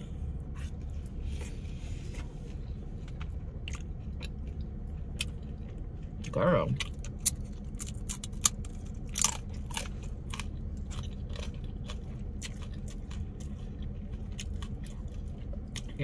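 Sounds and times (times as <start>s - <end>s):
crunching tortilla chip: 3.7s - 16.0s.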